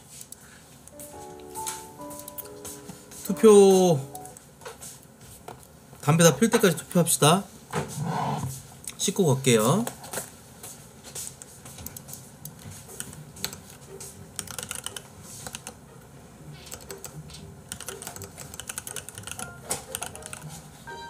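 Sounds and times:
typing on a keyboard: 0:14.4 - 0:15.8, 0:16.6 - 0:20.6.

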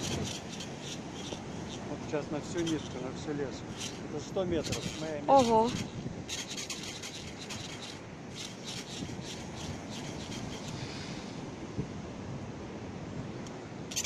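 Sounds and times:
wind rushing on microphone: 0:00.0 - 0:14.0
scratchy rustles: 0:03.7 - 0:10.8.

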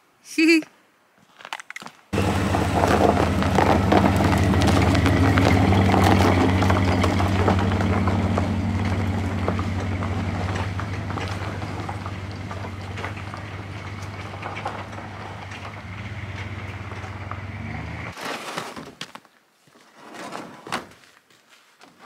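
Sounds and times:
tyres crackling on snow: 0:01.2 - 0:22.0
truck engine driving off: 0:02.2 - 0:18.2.

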